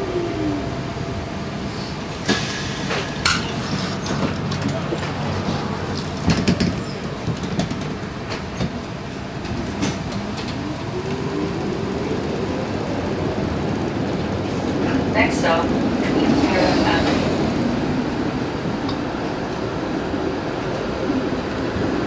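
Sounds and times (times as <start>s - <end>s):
streetcar rumbling: 0.0s - 22.0s
wheels clacking and knocking: 4.1s - 8.8s.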